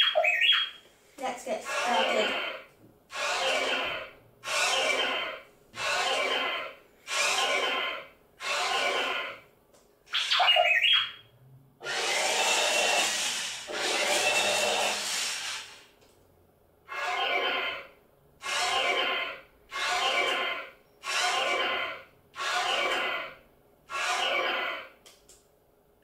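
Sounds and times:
toy robot motors whirring: 1.6s - 7.8s, 8.4s - 9.4s, 11.8s - 15.9s, 18.4s - 23.3s, 23.9s - 24.8s.

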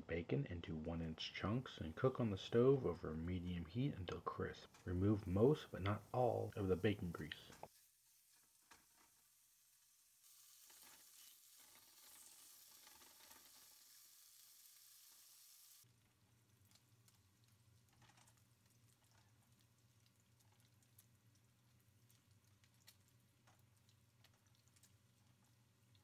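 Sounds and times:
spatula stirring: 4.6s - 14.1s
bacon sizzling in a skillet: 5.4s - 16.1s.

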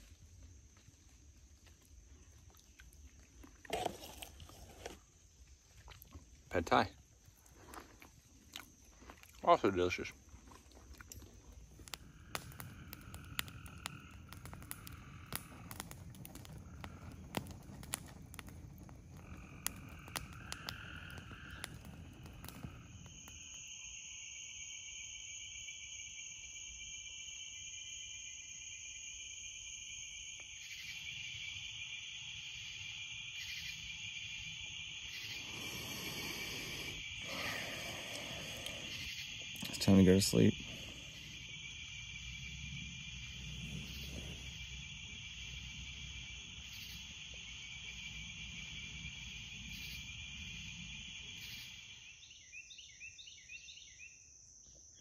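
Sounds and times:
frogs calling: 8.4s - 28.4s, 30.5s - 54.2s
sharp clicks and pops: 10.4s - 23.6s.

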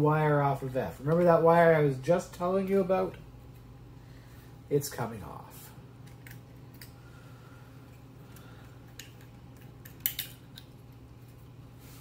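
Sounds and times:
small metallic clicks: 8.3s - 10.8s.

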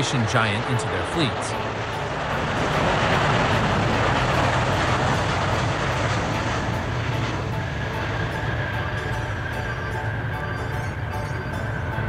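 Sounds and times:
rushing jet noise: 0.0s - 12.0s
low rumble: 0.1s - 12.0s.

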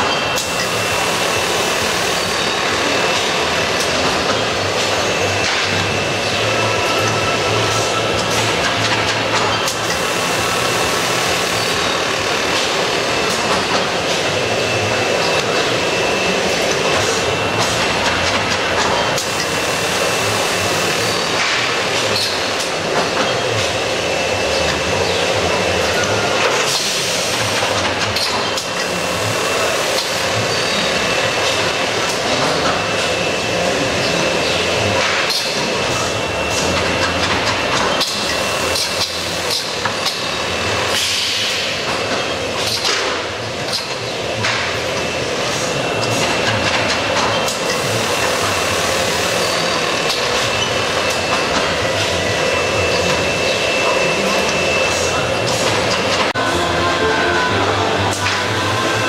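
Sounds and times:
thin high whine: 0.0s - 27.2s, 47.6s - 59.0s
machinery mechanical din: 0.0s - 59.0s.

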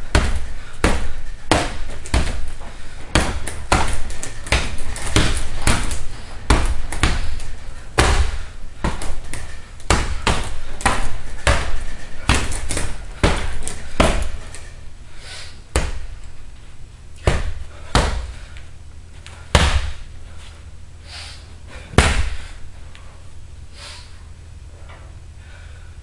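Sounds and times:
punches thudding on heavy bag: 0.0s - 14.7s, 15.7s - 16.2s, 17.2s - 18.5s, 19.5s - 20.1s, 21.8s - 22.5s.

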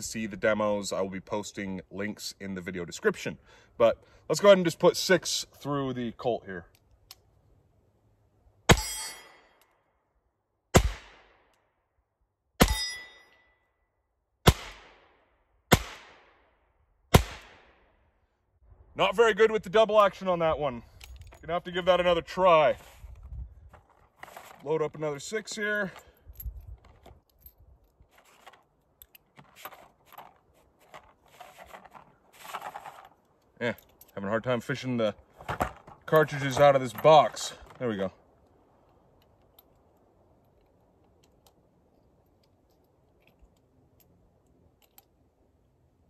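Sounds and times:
metallic ring: 8.7s - 9.6s, 12.6s - 13.8s.

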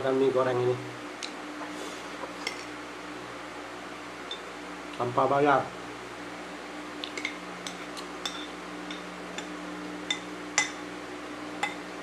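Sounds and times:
steady low hum: 0.0s - 12.0s
metal spoon clinking on plate: 7.2s - 9.5s, 11.6s - 11.8s.

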